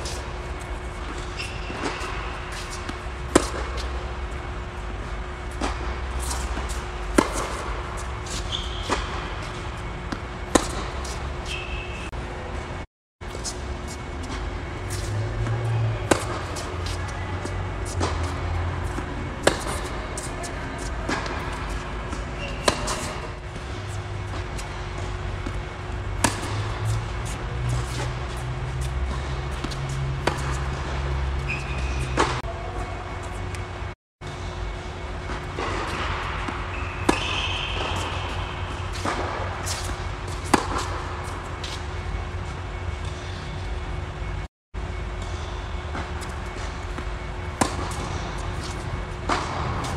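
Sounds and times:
tennis racket hitting ball: 0:00.0 - 0:04.4, 0:05.5 - 0:11.9, 0:14.9 - 0:32.4, 0:35.6 - 0:41.8, 0:46.6 - 0:49.9
tennis ball bouncing: 0:00.0 - 0:04.5, 0:05.2 - 0:11.9, 0:14.7 - 0:33.6, 0:35.2 - 0:41.8, 0:46.0 - 0:49.9
steady low hum: 0:00.0 - 0:49.9.

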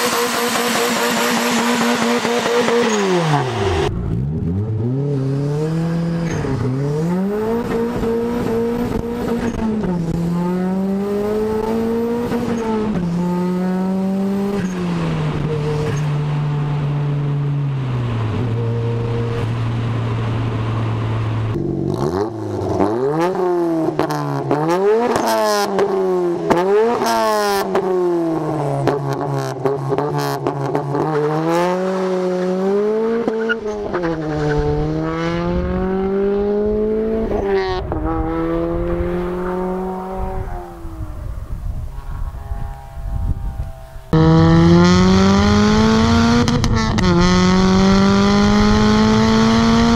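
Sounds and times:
car engine accelerating: 0:00.0 - 0:49.9
engine revving through exhaust: 0:42.3 - 0:49.9.

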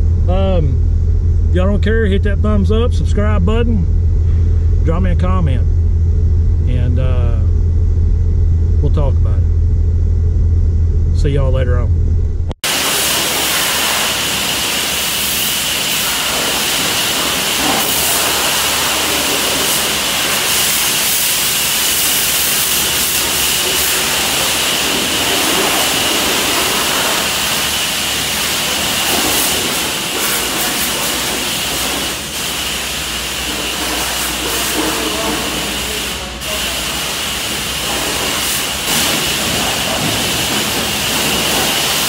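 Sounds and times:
high-pressure water spraying: 0:12.6 - 0:42.0.

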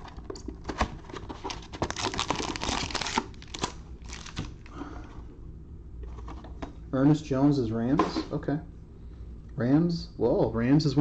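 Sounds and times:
foil wrapper crinkling: 0:01.4 - 0:04.7.

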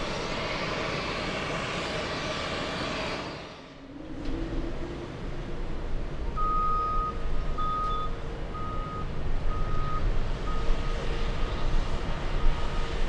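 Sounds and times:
jet engines rumbling: 0:00.0 - 0:13.0
reversing alarm beeps: 0:06.4 - 0:11.0.

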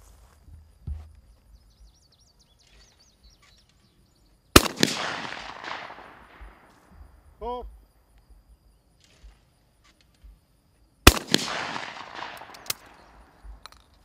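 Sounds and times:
shotgun shots: 0:04.5 - 0:06.7, 0:11.0 - 0:13.7.

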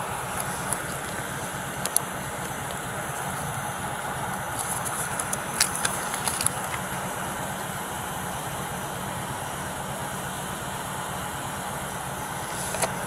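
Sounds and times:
idling vehicle hum: 0:00.0 - 0:13.0
paper rustling: 0:04.5 - 0:06.8.

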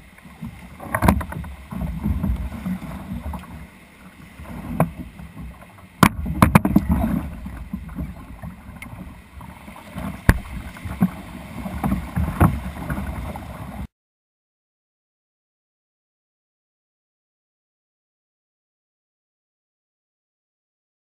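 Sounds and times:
water sloshing around kayak hull: 0:00.0 - 0:13.9
sharp knocks on kayak: 0:04.6 - 0:08.0, 0:10.2 - 0:11.2.

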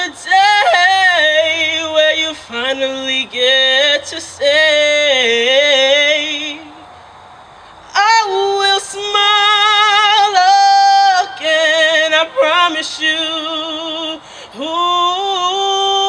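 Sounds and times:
woman singing gospel solo: 0:00.0 - 0:07.0, 0:07.8 - 0:16.0.

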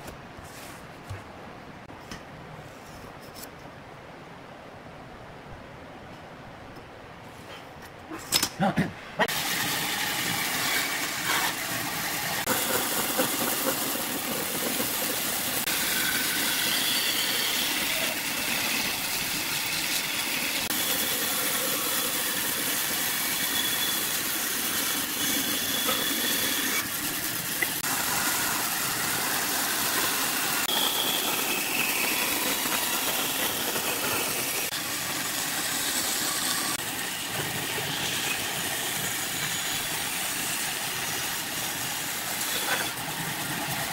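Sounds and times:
bandsaw cutting boards: 0:09.2 - 0:43.0.

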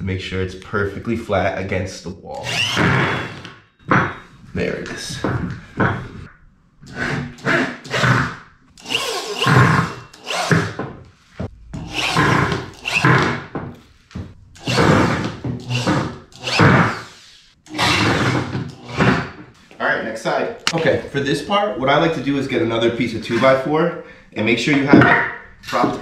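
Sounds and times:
electric drill driving screws: 0:02.4 - 0:03.6, 0:07.4 - 0:10.8, 0:11.9 - 0:13.4, 0:14.6 - 0:19.2.

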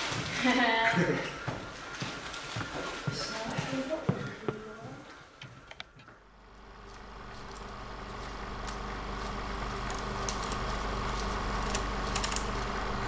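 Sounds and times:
low hum: 0:06.1 - 0:13.0.

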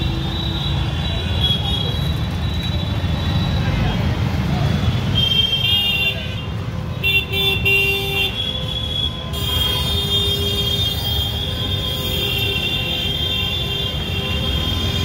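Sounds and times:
traffic rumble: 0:00.0 - 0:15.0
vehicle horns honking: 0:05.0 - 0:15.0.

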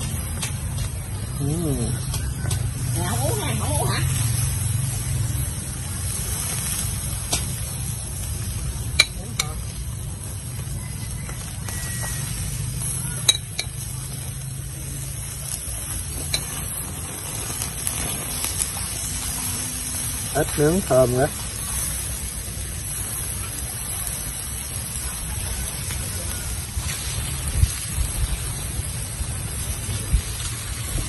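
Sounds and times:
meat sizzling on charcoal grill: 0:00.0 - 0:31.0
metal tongs clicking on grill: 0:09.0 - 0:09.8, 0:12.8 - 0:14.2, 0:15.9 - 0:16.8.

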